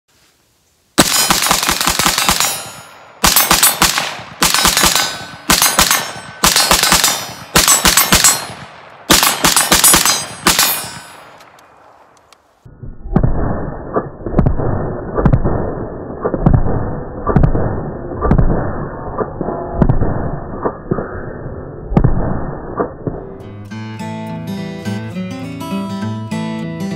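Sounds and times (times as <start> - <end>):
rifle firing rapid shots: 1.0 - 11.6.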